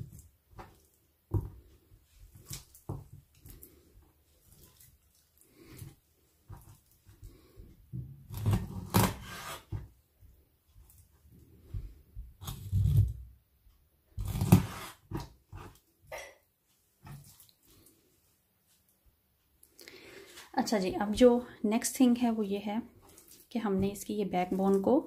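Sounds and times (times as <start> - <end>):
wet handling of meat: 0.0 - 7.9, 16.7 - 21.4, 22.1 - 25.0
knife chopping on wooden board: 14.2 - 15.7.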